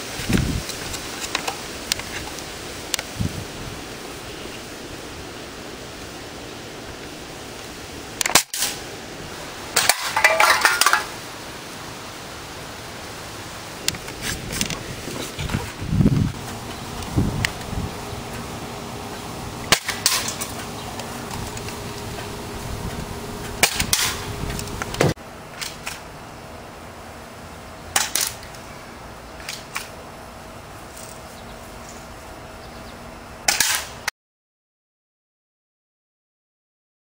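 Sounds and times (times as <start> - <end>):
airsoft rifle single shots: 33.5 - 34.0.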